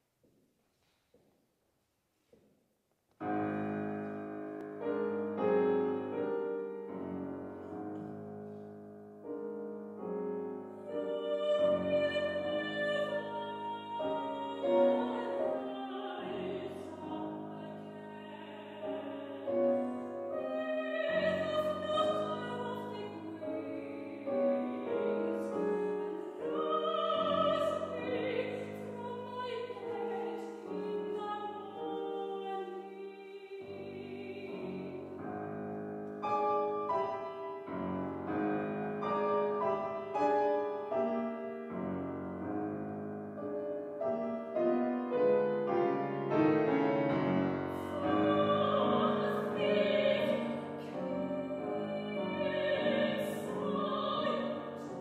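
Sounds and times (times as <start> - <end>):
grand piano: 3.1 - 55.0
soprano singing: 9.3 - 40.9, 44.2 - 55.0.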